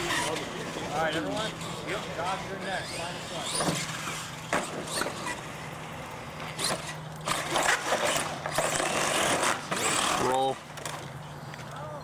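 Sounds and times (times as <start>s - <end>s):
toy truck scraping and clattering: 6.6s - 11.1s.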